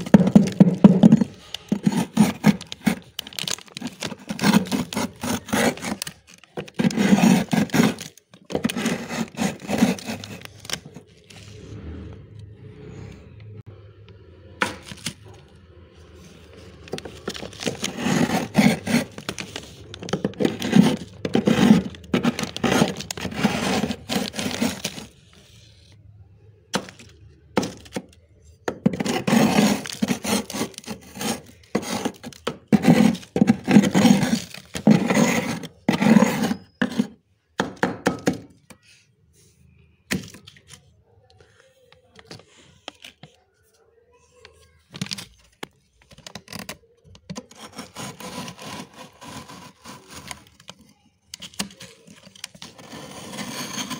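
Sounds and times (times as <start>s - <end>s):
metal spoon crunching through frost: 0.0s - 11.3s, 16.6s - 25.3s, 28.8s - 37.0s, 47.4s - 50.7s.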